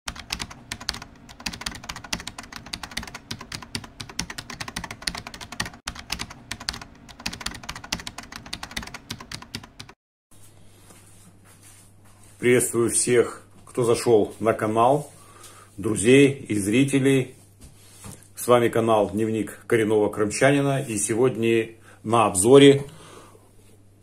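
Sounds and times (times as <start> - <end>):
computer keyboard typing: 0.1 - 10.0.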